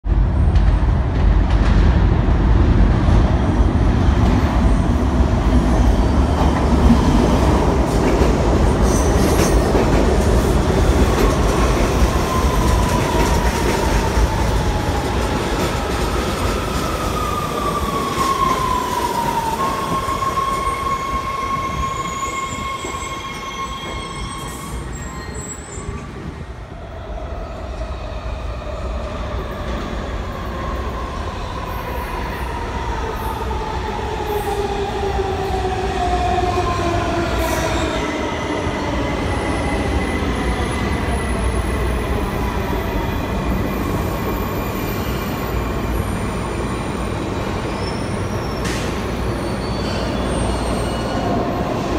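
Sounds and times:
subway train rumble: 0.0s - 51.9s.

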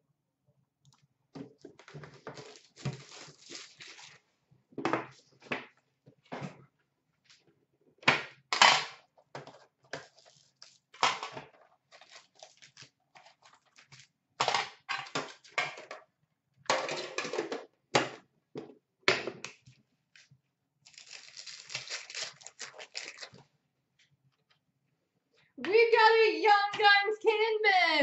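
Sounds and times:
card pack wrappers crinkling: 2.1s - 4.2s, 11.9s - 14.1s, 20.8s - 23.5s.

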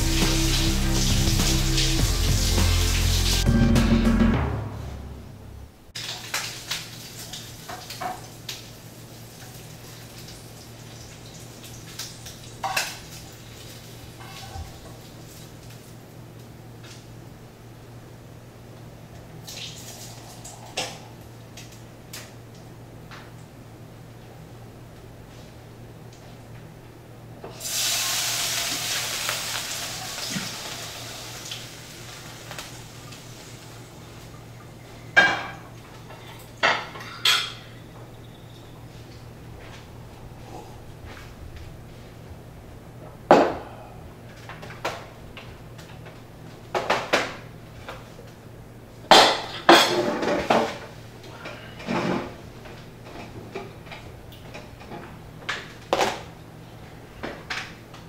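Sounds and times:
frying pan sizzling: 0.0s - 4.3s, 6.0s - 15.8s, 27.5s - 34.4s.

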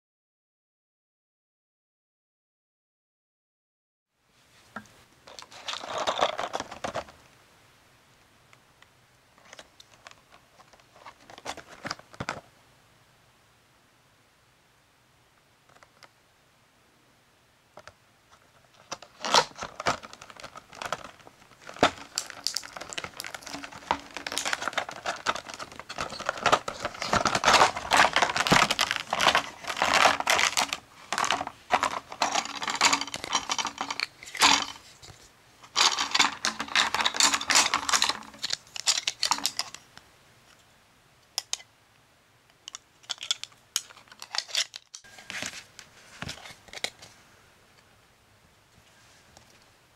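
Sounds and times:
plastic packaging crinkling: 5.3s - 7.2s, 18.5s - 39.9s, 42.7s - 47.1s
plastic pieces clicking: 18.8s - 34.8s, 35.7s - 39.8s, 41.4s - 41.6s, 42.5s - 45.1s.

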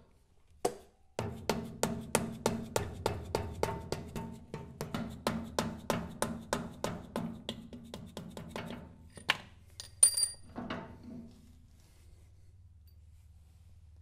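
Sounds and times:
metallic clang and clink: 9.1s - 10.8s.

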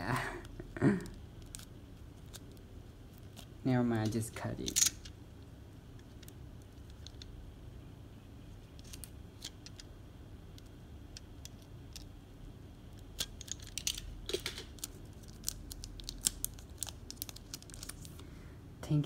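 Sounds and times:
paper and plastic packaging crinkling: 13.4s - 18.2s.

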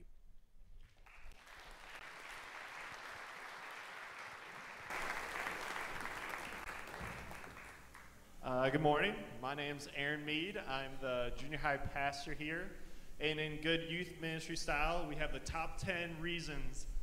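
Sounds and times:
congregation applauding: 0.8s - 8.2s.

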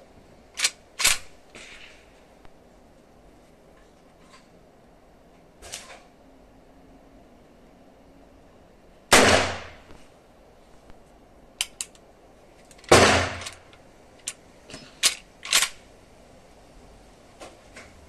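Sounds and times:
rifle lever metallic clicks: 0.6s - 1.3s, 11.6s - 12.0s, 12.6s - 14.4s, 15.0s - 15.8s
rifle gunshots with echo: 9.1s - 9.9s, 12.9s - 13.7s.

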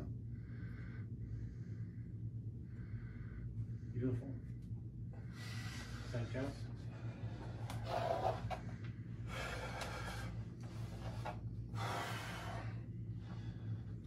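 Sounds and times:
low electrical hum: 0.0s - 14.0s
man breathing hard: 0.1s - 4.1s, 5.1s - 14.0s.

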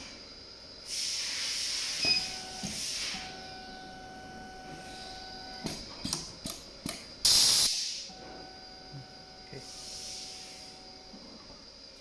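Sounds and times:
faint machine hum: 0.0s - 12.0s
compressed air hiss: 0.8s - 3.3s, 7.2s - 8.1s, 9.5s - 10.8s.

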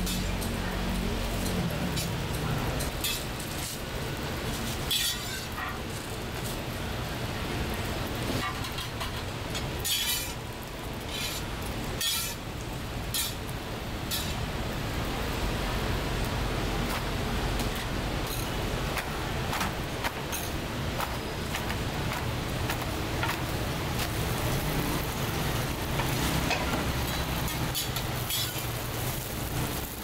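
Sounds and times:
metal utensils clinking and scraping: 0.0s - 0.6s, 1.3s - 3.8s, 4.6s - 6.1s, 8.4s - 10.4s, 11.0s - 12.4s, 13.1s - 13.4s, 14.1s - 14.4s, 25.9s - 29.9s
steady background hiss: 0.0s - 30.0s.

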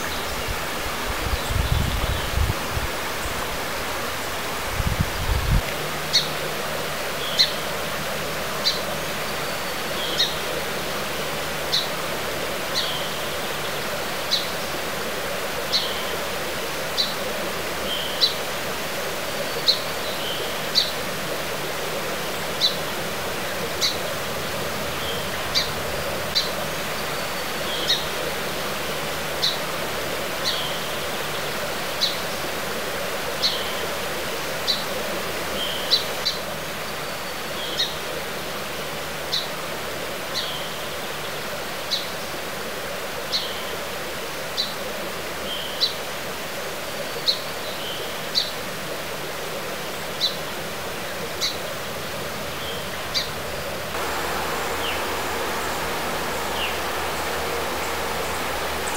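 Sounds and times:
flowing stream: 0.0s - 58.9s
bird chirping: 54.0s - 58.9s.

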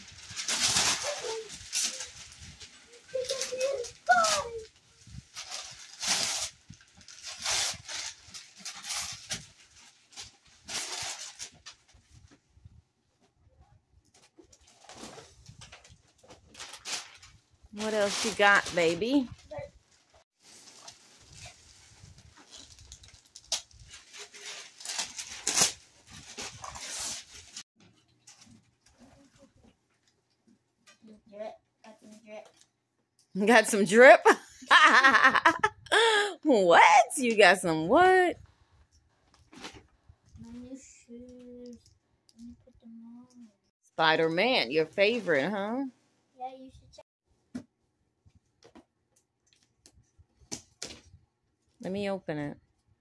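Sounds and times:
wrapping paper tearing and crumpling: 0.0s - 12.0s, 14.6s - 19.7s, 20.4s - 27.6s.

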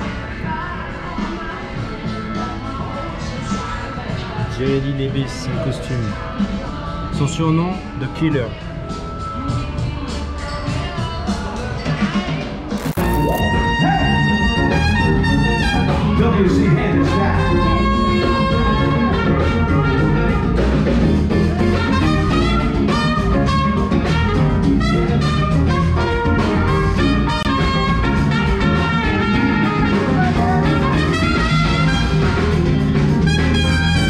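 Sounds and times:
brass music with steady beat: 12.8s - 34.0s.

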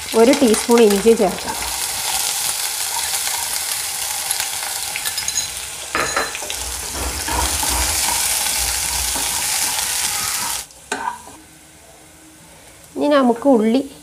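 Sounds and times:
oil crackling: 0.0s - 10.7s
garlic sizzling in hot oil: 0.0s - 11.4s.

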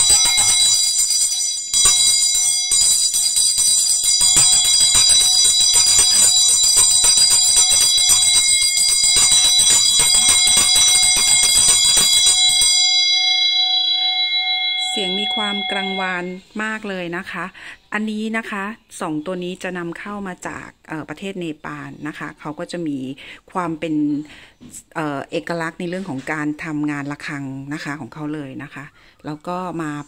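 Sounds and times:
hand bell ringing: 0.0s - 16.4s.

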